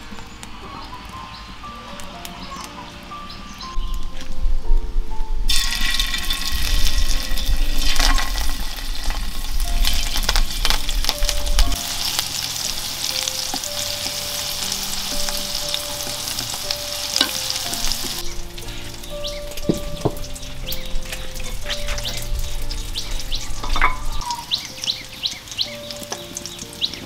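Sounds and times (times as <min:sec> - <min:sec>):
rolls sizzling in hot oil: 0:05.5 - 0:27.0.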